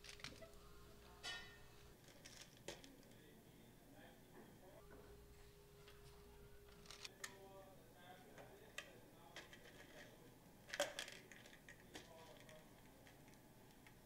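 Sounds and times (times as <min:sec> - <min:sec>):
plastic toy clicking and rattling: 0:08.8 - 0:14.0.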